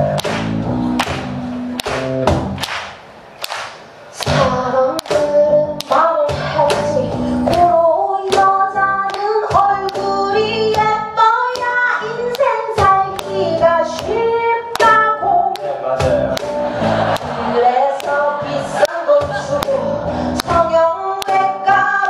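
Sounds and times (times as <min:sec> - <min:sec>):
bass: 0:00.0 - 0:02.8, 0:03.4 - 0:22.0
woman singing into microphone: 0:04.2 - 0:15.6, 0:17.5 - 0:22.0.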